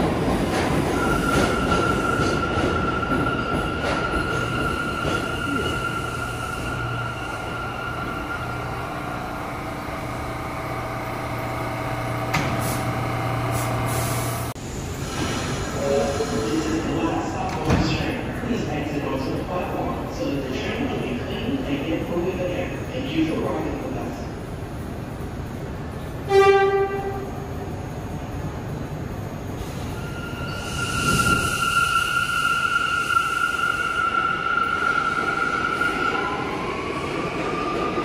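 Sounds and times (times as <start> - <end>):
subway train electrical hum: 0.0 - 38.0
train horn blast: 26.3 - 27.2.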